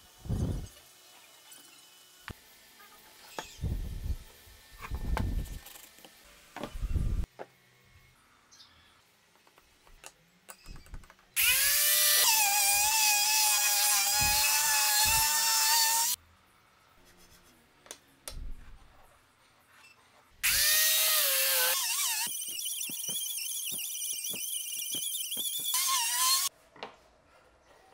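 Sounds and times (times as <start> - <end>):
angle grinder whining: 11.4 - 16.2, 20.4 - 26.5.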